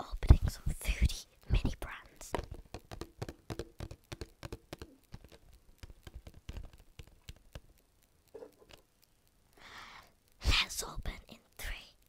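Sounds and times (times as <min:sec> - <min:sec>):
fingernails tapping plastic capsule: 0:02.0 - 0:07.8.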